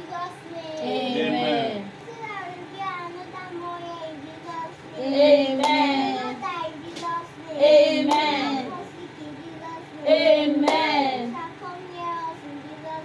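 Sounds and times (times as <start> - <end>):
high voices singing: 4.4 - 11.5
sharp hand claps: 10.6 - 10.9.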